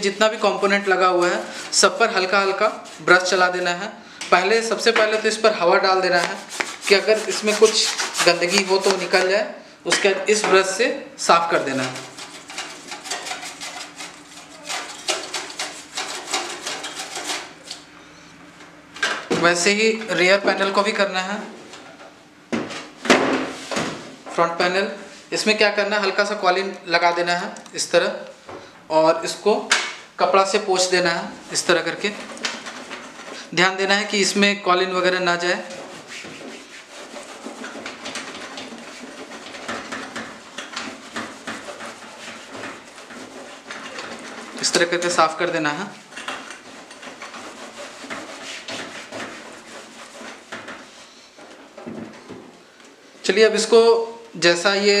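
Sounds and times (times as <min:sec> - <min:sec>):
cloth rubbing on a panel: 0:00.5 - 0:03.8, 0:05.1 - 0:09.2, 0:11.6 - 0:17.6, 0:35.3 - 0:45.4, 0:46.0 - 0:51.8
brush sweeping over metal: 0:06.3 - 0:09.1.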